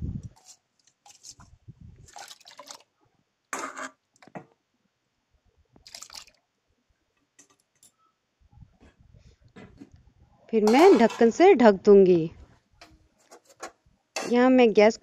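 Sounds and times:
rice splashing into water: 5.8 - 6.4.

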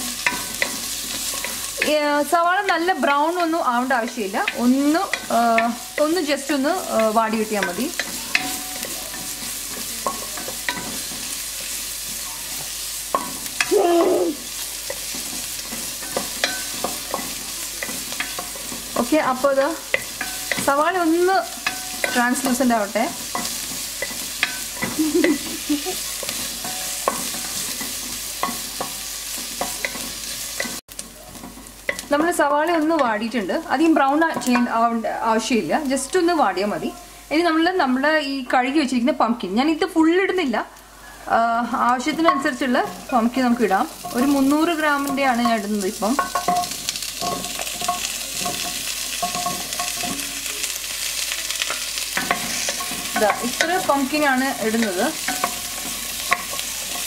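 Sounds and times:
onions sizzling in oil: 0.0 - 57.0
spatula scraping a pot: 46.1 - 57.0.

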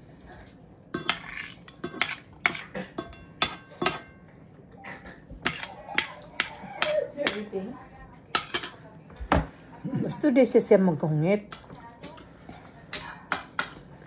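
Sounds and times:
cutlery clinking on a plate: 1.0 - 4.3, 5.2 - 7.5, 8.2 - 9.5, 11.5 - 13.9.

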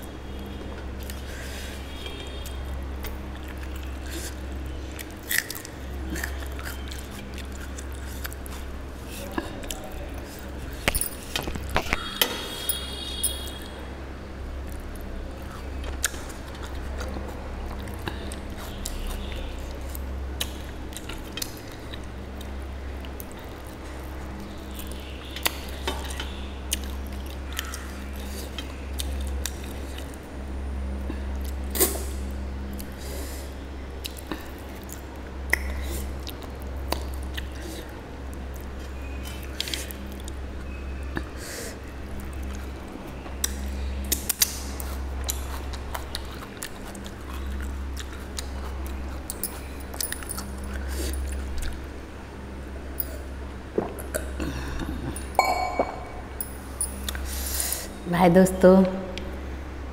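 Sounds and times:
chewing meat off bone: 2.0 - 10.6, 42.1 - 52.1
low hum: 49.4 - 57.3
clinks against steel plate: 55.4 - 57.0.

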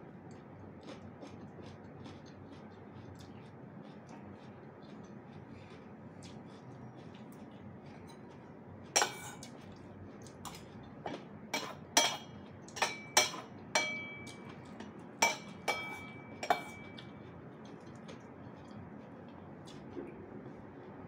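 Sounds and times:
cutlery clinking against a bowl: 8.0 - 18.2.

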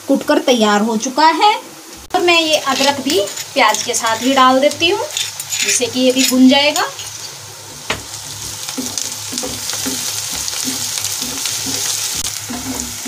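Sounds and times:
onions sizzling in hot oil: 0.0 - 13.0
wooden spatula stirring and scraping: 2.5 - 7.4, 8.2 - 13.0.

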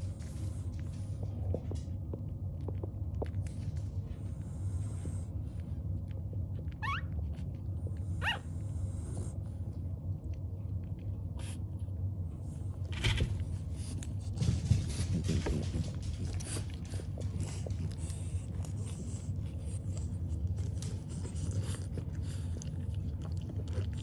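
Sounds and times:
steady low hum: 0.0 - 24.0
puppies squeaking: 6.8 - 7.1, 8.2 - 8.4.

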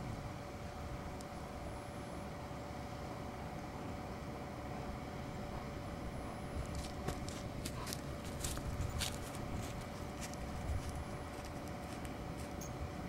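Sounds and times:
faint hum: 0.0 - 13.0
light clicks and rustles: 6.7 - 12.8.

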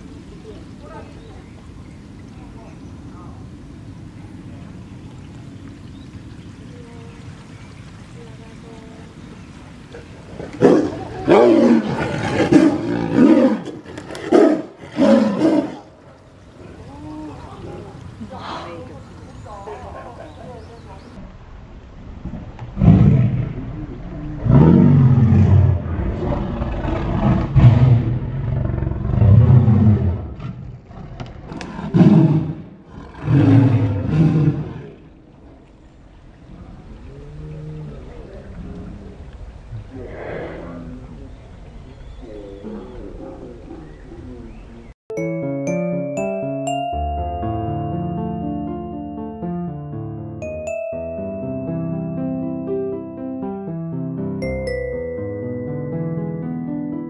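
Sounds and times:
tiger roaring: 10.4 - 16.0, 22.8 - 23.8, 24.4 - 35.0.

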